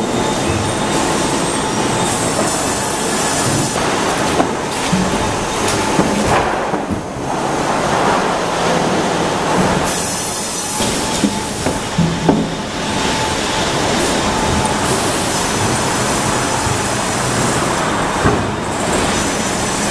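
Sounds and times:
sawmill machinery rumble and clatter: 0.0 - 19.9.

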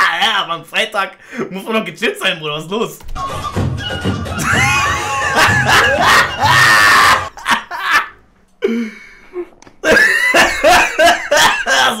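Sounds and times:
man laughing heartily: 4.4 - 8.2, 9.8 - 12.0.

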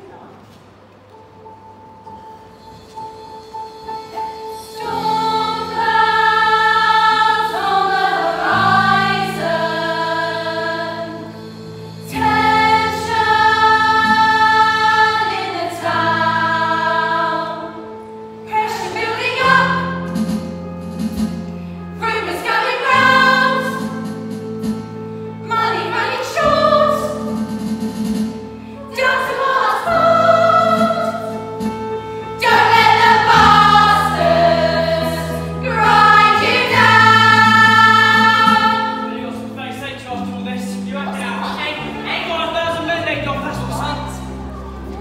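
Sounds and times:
female chorus singing: 4.8 - 11.4, 12.0 - 17.9, 18.5 - 20.1, 22.0 - 23.9, 25.4 - 27.3, 28.8 - 31.4, 32.4 - 39.1.

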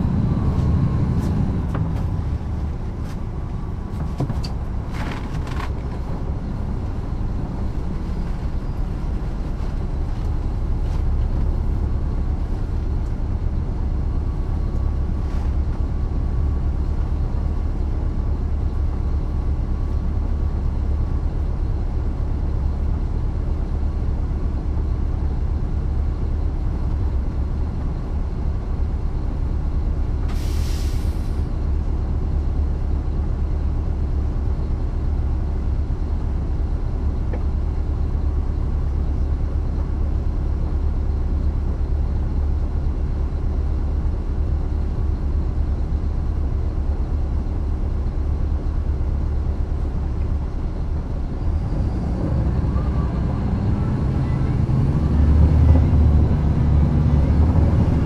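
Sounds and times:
bus diesel engine drone: 0.0 - 58.0
compressed air hiss: 30.3 - 31.3.

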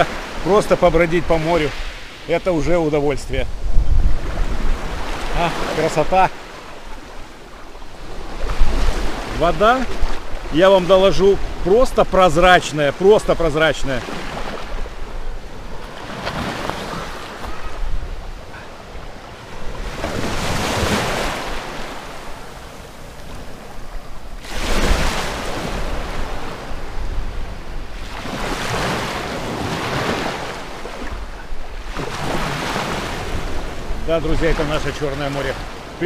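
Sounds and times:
wind rumbling on microphone: 3.0 - 5.4, 6.9 - 9.2, 14.2 - 30.0
waves washing over pebbles: 19.4 - 27.0, 27.9 - 36.0.

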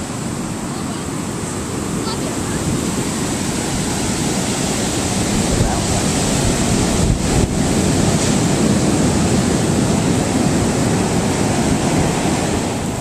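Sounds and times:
ocean waves breaking: 0.0 - 13.0.

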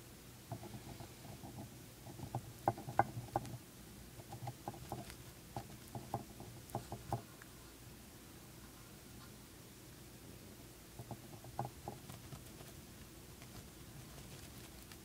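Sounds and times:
hamster gnawing crunches: 0.5 - 7.6, 10.9 - 15.0.

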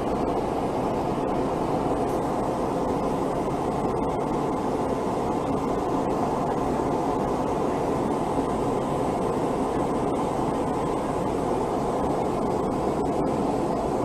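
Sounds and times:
aircraft cabin engine noise: 0.0 - 14.0.

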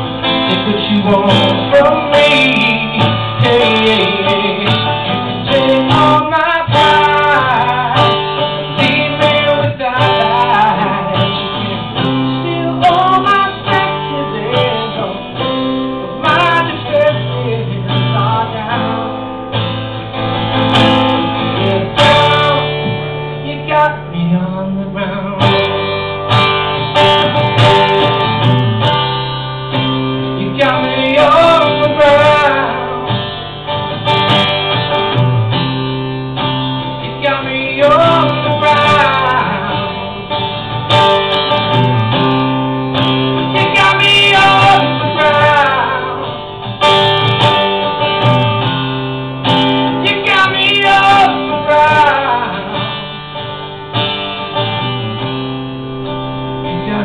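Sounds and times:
man singing: 0.0 - 19.7, 20.4 - 25.8, 30.2 - 33.3, 37.0 - 40.6, 43.4 - 46.4, 49.5 - 53.0, 56.0 - 57.0
acoustic guitar strumming: 0.0 - 57.0.

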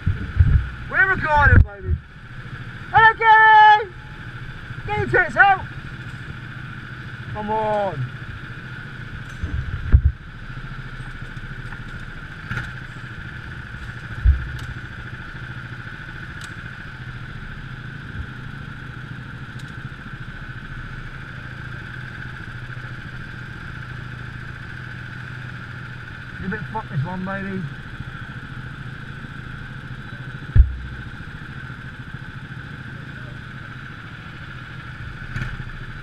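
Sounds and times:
go-kart engine running: 0.0 - 36.0
short thumps: 14.2 - 14.8, 30.5 - 31.3.

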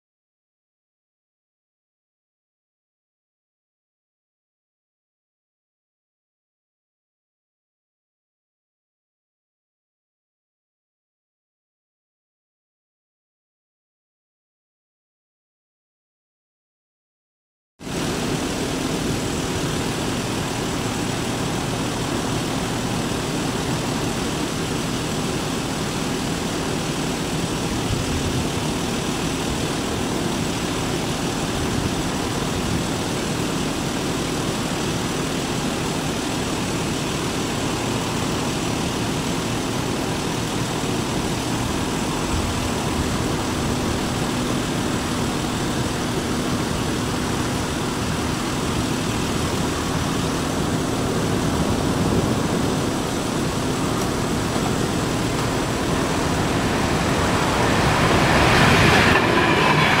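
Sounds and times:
car engine idling: 17.9 - 60.0.

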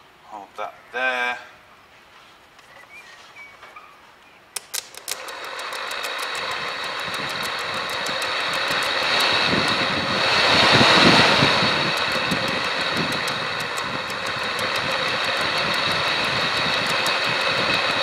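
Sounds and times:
cooling fan motor running: 4.6 - 18.0.

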